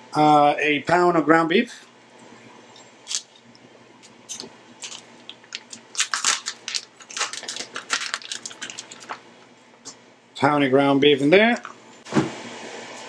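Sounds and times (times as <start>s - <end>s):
plastic wrapping crinkling and tearing: 3.1s - 3.4s, 4.8s - 9.3s.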